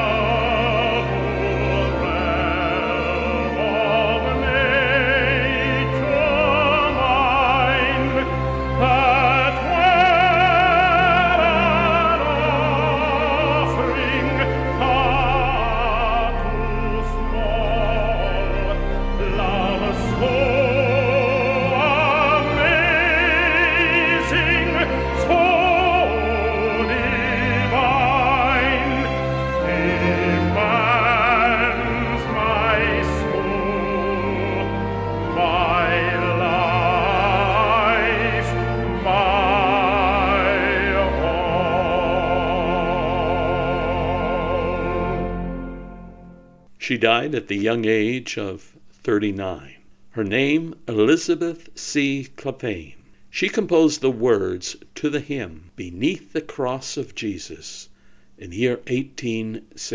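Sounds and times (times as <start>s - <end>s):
instrumental accompaniment: 0.0s - 46.8s
operatic hymn singing: 0.0s - 57.6s.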